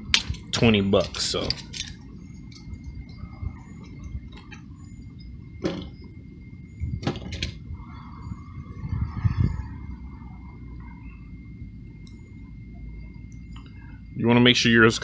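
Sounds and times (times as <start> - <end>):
steady low rumble: 0.0 - 15.0
handling clicks and knocks: 0.1 - 2.7.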